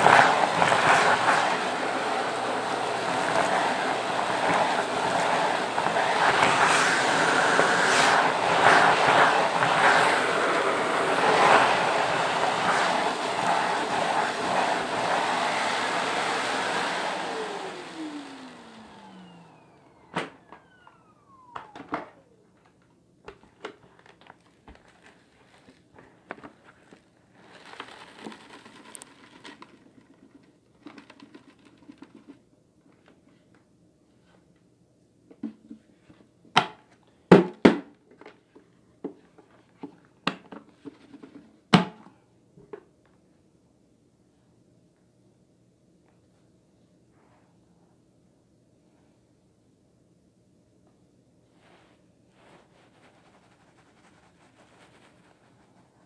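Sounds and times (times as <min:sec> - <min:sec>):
vacuum cleaner running: 0:00.0 - 0:29.7
motor winding down whine: 0:17.0 - 0:22.5.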